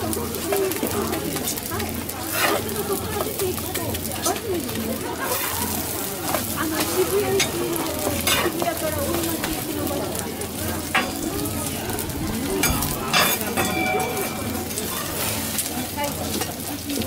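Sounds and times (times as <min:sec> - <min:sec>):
food sizzling on a griddle: 0:00.0 - 0:17.0
metal spatulas scraping: 0:02.3 - 0:02.6, 0:12.6 - 0:15.6.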